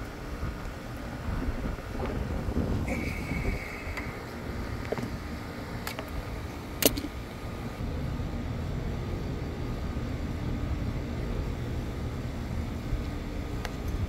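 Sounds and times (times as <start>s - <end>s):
low outdoor rumble: 0.0s - 14.0s.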